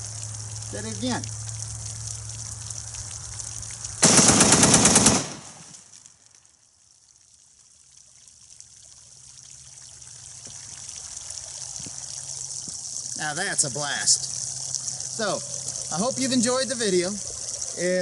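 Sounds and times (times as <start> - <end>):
water pouring and trickling: 0.0 - 4.0, 5.7 - 18.0
rapid rifle shots: 4.0 - 5.6.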